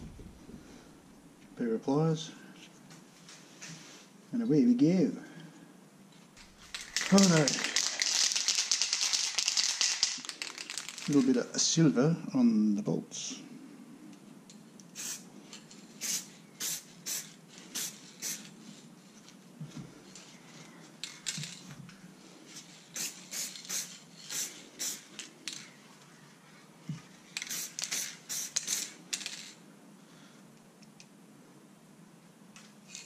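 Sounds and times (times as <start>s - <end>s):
spray paint can hissing: 6.5s - 11.2s, 14.9s - 15.2s, 16.0s - 18.5s, 22.7s - 25.2s, 27.4s - 29.5s.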